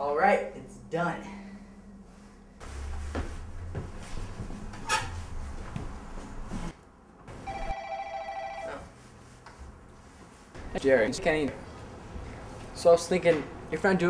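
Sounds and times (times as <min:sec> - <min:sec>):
soft knocks and rustling: 0:02.6 - 0:06.8
telephone ringing: 0:07.4 - 0:08.9.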